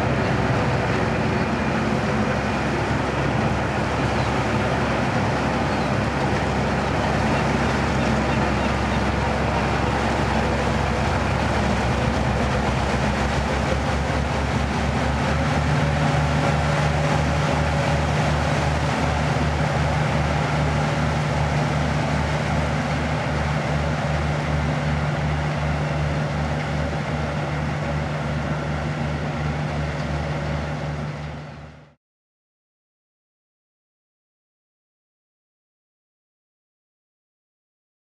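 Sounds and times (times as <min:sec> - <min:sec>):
boat diesel engine running: 0:00.0 - 0:32.0.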